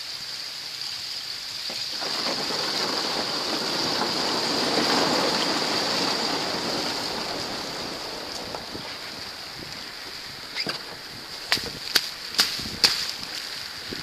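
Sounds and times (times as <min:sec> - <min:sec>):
small waves washing: 0:01.5 - 0:14.0.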